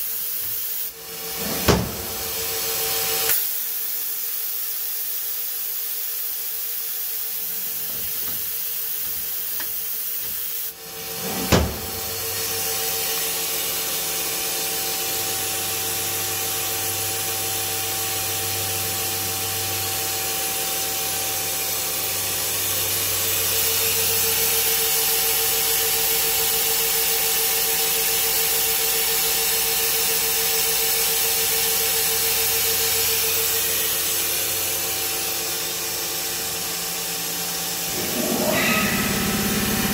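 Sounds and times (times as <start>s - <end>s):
machinery hum and whine: 7.2s - 25.6s, 33.1s - 39.9s
low hum: 37.7s - 39.9s.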